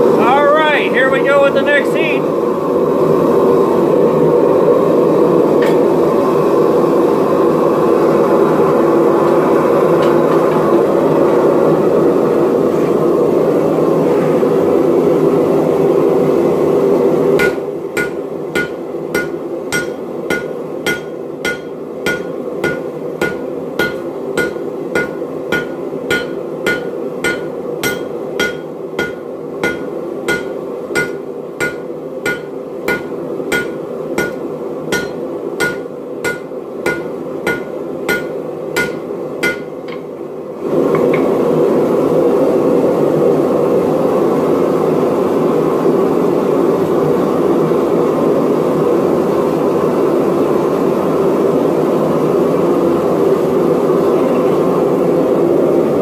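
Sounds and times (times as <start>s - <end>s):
gas forge burner rushing: 0.0s - 0.4s, 1.1s - 56.0s
hammer striking metal on anvil: 17.4s - 40.1s.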